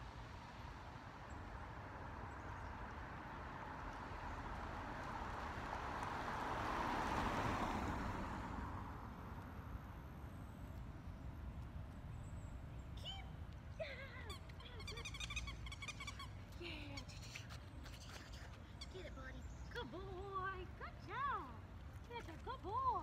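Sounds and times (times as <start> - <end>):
car driving past: 2.2 - 10.0.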